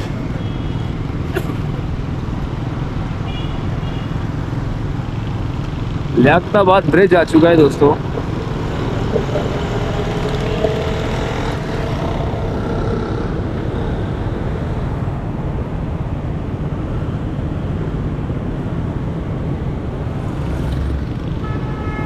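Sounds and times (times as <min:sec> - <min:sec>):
motorcycle engine rumble: 0:00.0 - 0:16.4
road and wind noise: 0:00.0 - 0:22.0.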